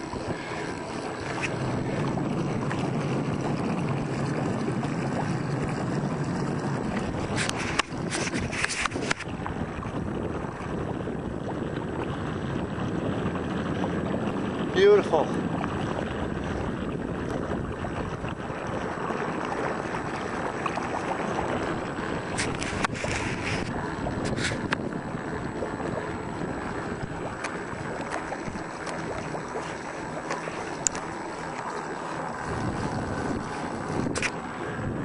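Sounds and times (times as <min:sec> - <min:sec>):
wind noise on microphone: 0:00.0 - 0:31.2, 0:31.9 - 0:35.0
water rushing along hull: 0:00.0 - 0:35.0.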